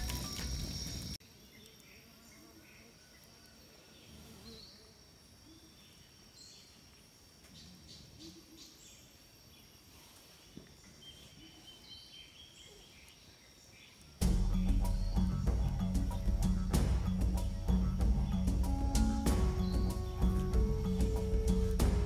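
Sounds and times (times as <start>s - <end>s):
high-pitched insect drone: 14.2s - 22.0s.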